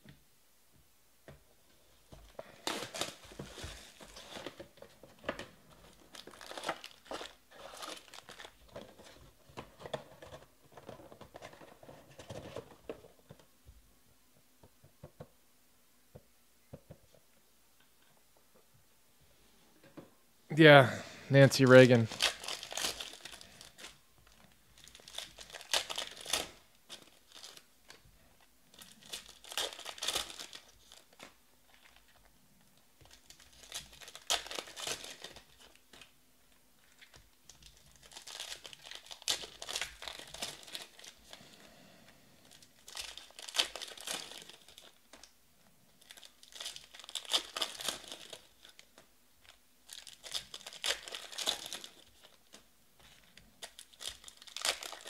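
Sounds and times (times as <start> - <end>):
foil wrappers crinkling and tearing: 2.3 - 12.7, 21.7 - 28.0, 28.7 - 32.3, 33.0 - 36.1, 36.8 - 41.5, 42.4 - 45.4, 46.0 - 55.0.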